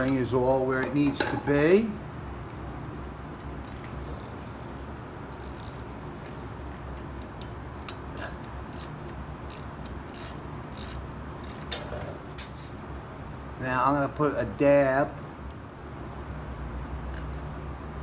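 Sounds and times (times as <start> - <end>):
hand ratchet clicking: 5.3 - 5.9, 7.8 - 11.8.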